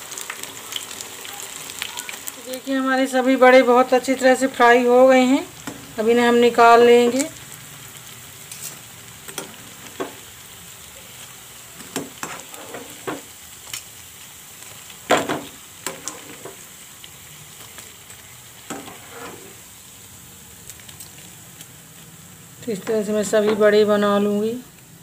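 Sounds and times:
food sizzling in hot oil: 0.0s - 25.0s
metal utensils scraping a pan: 8.5s - 10.2s, 11.8s - 13.3s, 15.1s - 16.6s, 18.7s - 19.6s.

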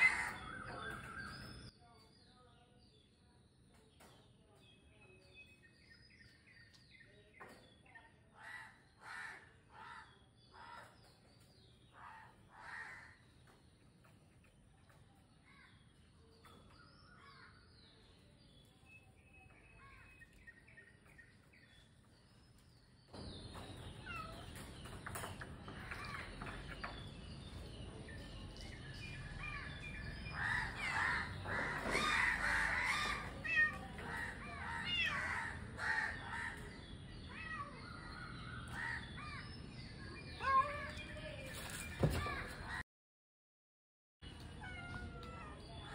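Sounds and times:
crows cawing: 0.0s - 0.6s, 12.1s - 13.2s, 30.4s - 33.4s, 34.1s - 36.7s.

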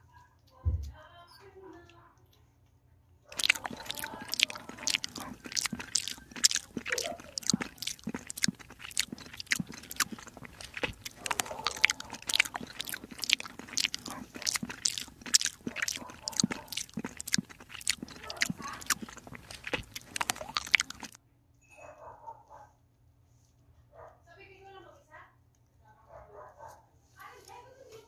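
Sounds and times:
kitten chewing wet food: 3.3s - 21.2s.

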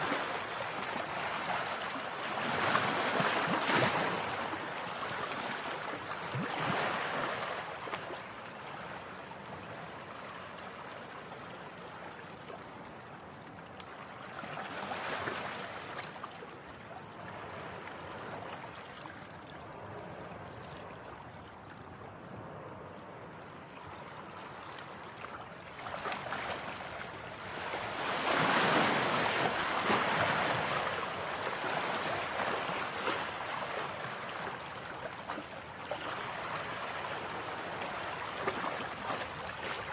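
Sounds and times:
waves washing in: 0.0s - 39.9s.

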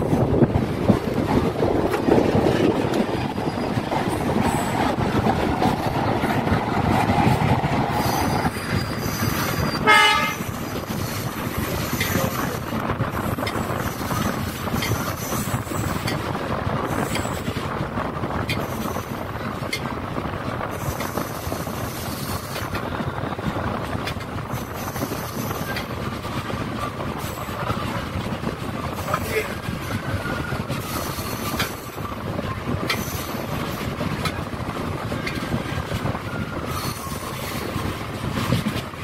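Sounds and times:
train wheels rumbling: 0.0s - 39.0s
train horn blast: 9.8s - 10.5s.

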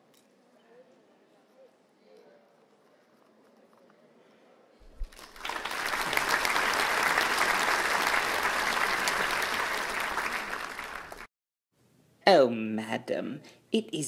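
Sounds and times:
audience applauding: 5.0s - 11.3s.

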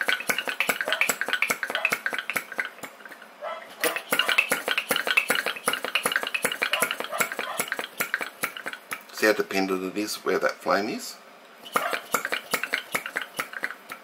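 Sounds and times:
rapid metallic clicking: 0.0s - 3.2s, 3.8s - 9.2s, 11.7s - 14.0s.

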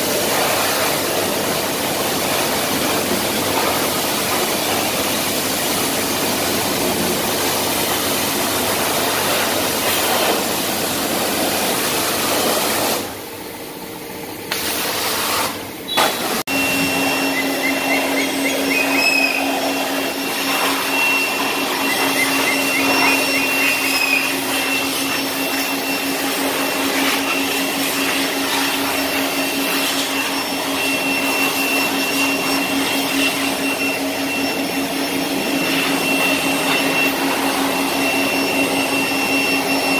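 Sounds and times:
electric air blower whining: 0.0s - 39.9s.

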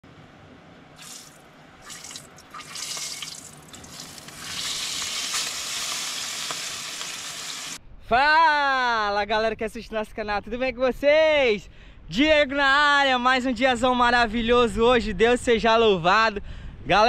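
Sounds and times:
food sizzling in hot oil: 1.0s - 7.8s
oil crackling: 1.0s - 7.8s.

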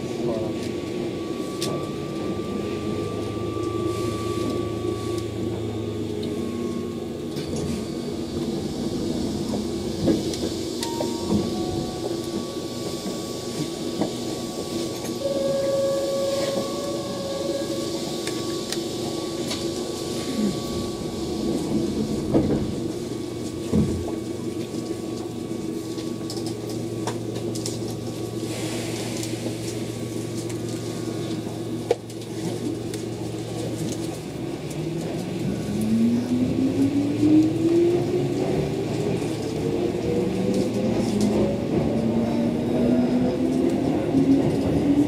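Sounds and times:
train running gear hum: 0.0s - 45.0s
traction motor whine: 1.3s - 27.9s.

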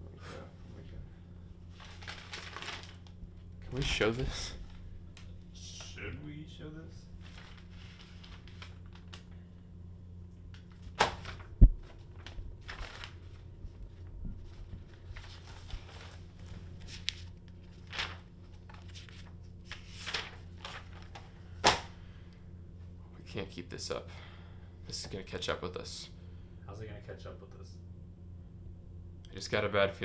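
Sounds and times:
low electrical hum: 0.0s - 30.0s
paper rustling and crinkling: 1.7s - 3.2s, 7.2s - 9.5s, 10.5s - 21.9s
sharp paper crackles: 1.7s - 3.2s, 7.2s - 9.4s, 10.5s - 21.9s.

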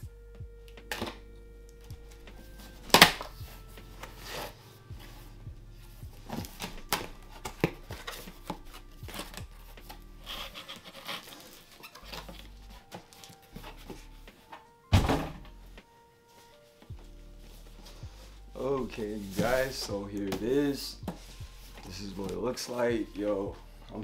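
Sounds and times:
quiet background music: 0.0s - 24.0s
loud thump: 14.9s - 15.5s
cardboard box being handled: 17.5s - 23.5s.

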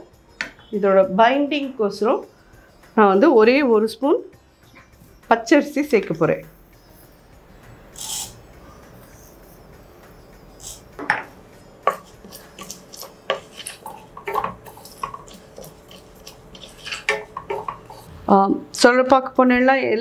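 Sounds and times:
spoon clinking against a pan: 11.1s - 18.1s.

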